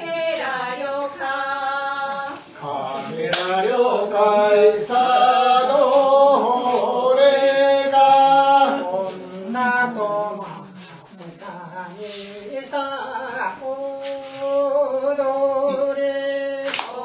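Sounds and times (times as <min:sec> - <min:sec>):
voices singing a chant-like song: 0:00.0 - 0:17.0.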